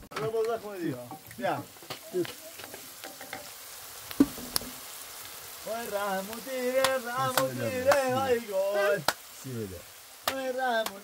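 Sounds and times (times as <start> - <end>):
food sizzling in a pan: 0.0 - 11.0
wooden spatula stirring and clicking: 0.1 - 4.8
person speaking: 7.0 - 11.0.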